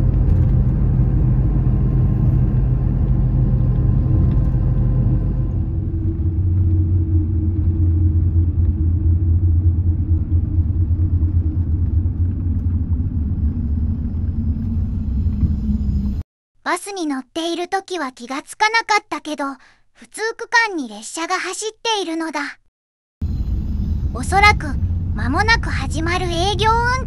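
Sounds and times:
bus engine and road rumble: 0.0s - 16.2s, 23.2s - 27.0s.

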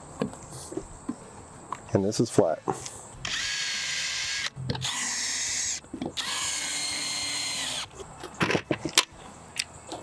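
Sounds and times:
cordless drill whining: 3.2s - 7.9s.

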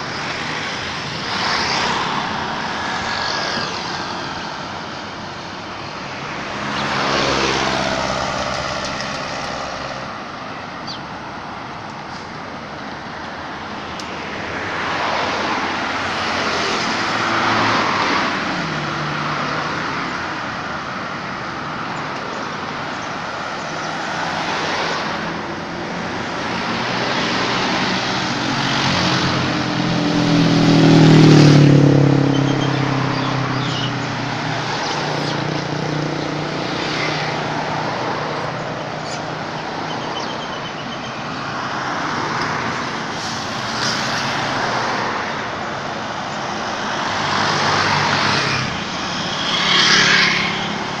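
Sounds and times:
road traffic passing: 0.0s - 51.0s
vehicle engine passing close: 27.3s - 39.1s.

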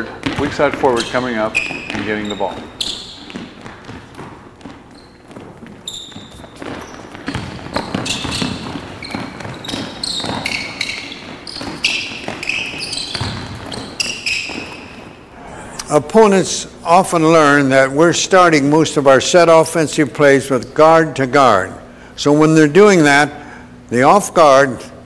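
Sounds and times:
basketball bouncing on wooden floor: 0.0s - 15.3s
sneakers squeaking: 0.0s - 15.8s.

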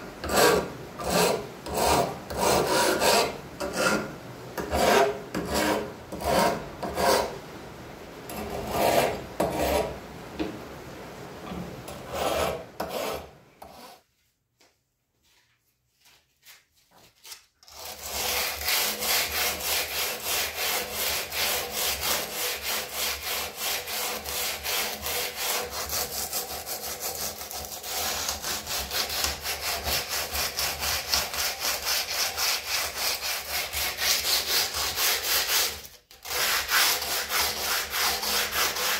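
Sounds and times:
fast back-and-forth rubbing: 15.9s - 38.9s.

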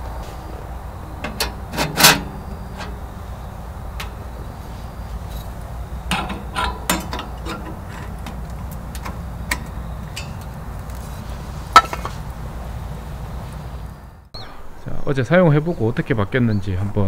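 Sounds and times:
low background rumble: 0.0s - 14.8s
metal stove clicks and knocks: 1.2s - 3.2s, 3.9s - 4.5s, 6.0s - 10.6s, 11.8s - 12.2s.

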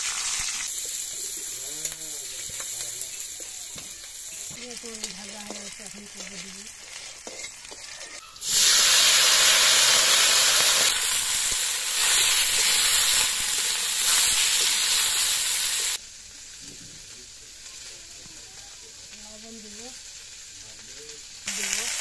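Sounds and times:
vegetables sizzling in hot oil: 0.0s - 22.0s
metal spatula scraping: 4.3s - 8.5s.

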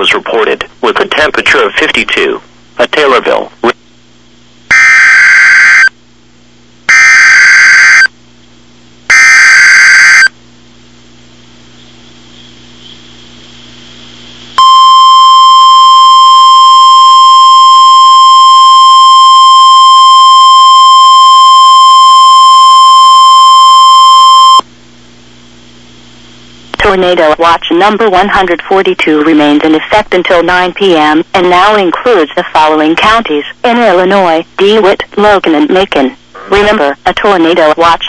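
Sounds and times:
faint static: 0.0s - 38.0s
steady warning alarm tone: 4.7s - 5.9s, 6.9s - 8.1s, 9.1s - 10.3s, 14.6s - 24.6s.

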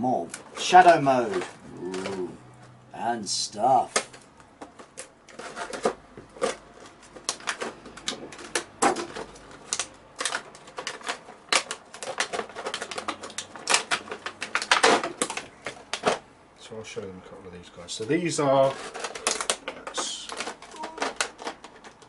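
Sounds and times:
plastic packaging crinkling: 3.8s - 16.2s, 18.1s - 22.0s.

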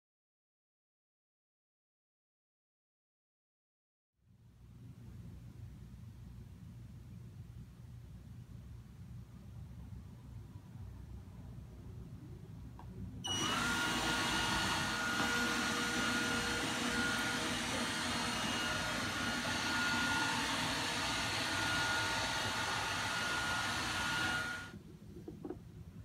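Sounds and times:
robot vacuum motor whine: 13.2s - 24.8s.

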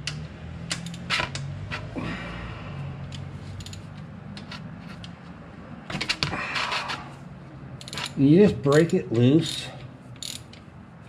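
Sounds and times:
metal wrench clicks: 0.0s - 1.9s, 3.0s - 5.2s, 7.8s - 10.7s.

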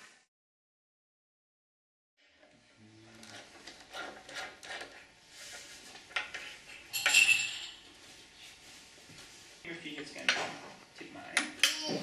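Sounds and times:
metal fittings clinking on glass: 6.9s - 7.9s.

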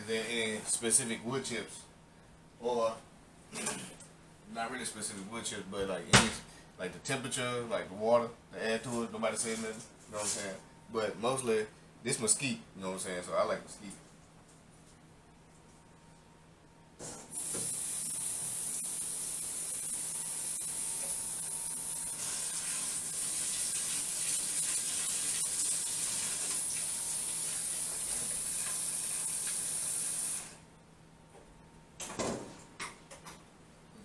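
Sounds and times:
water spraying from faucet: 17.4s - 30.5s.

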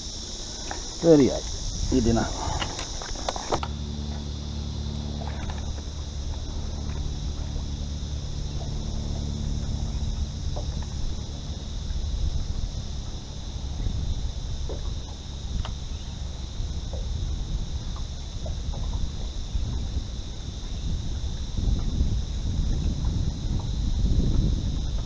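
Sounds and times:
high-pitched insect chorus: 0.0s - 25.0s
wind rumble on microphone: 0.0s - 25.0s
faint clicks: 15.6s - 15.8s.

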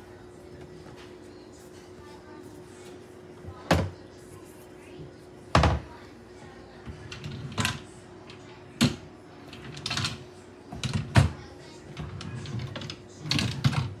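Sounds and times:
drawers sliding: 11.9s - 14.0s.

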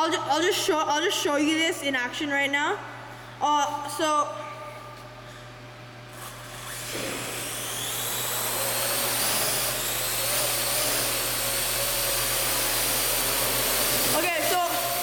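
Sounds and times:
drone propellers whining: 6.7s - 15.0s.

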